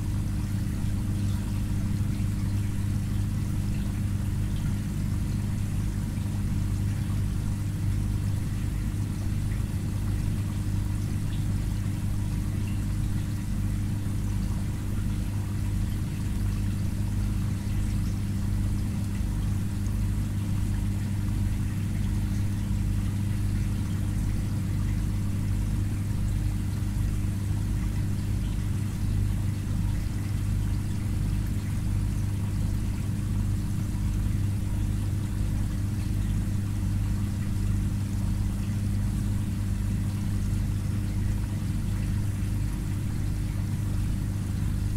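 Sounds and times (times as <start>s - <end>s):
aquarium pump humming: 0.0s - 44.9s.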